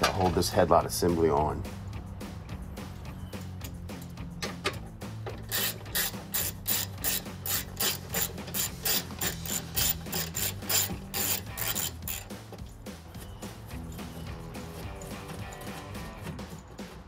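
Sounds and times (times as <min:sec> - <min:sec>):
ratchet clicking: 0:04.7 - 0:15.7.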